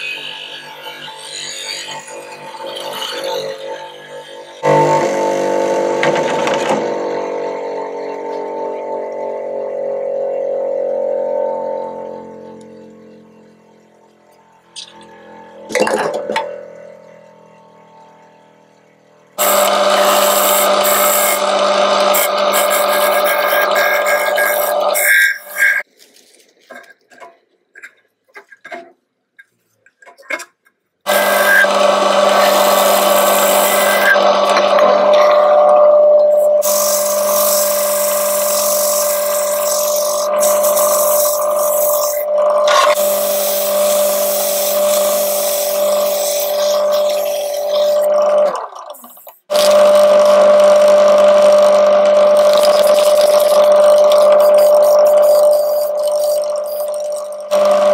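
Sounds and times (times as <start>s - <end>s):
wood lathe motor hum: 0.0s - 25.9s, 31.1s - 57.9s
bowl being sanded: 19.4s - 25.9s, 31.1s - 34.5s, 36.4s - 42.3s, 42.9s - 48.1s, 52.4s - 57.9s.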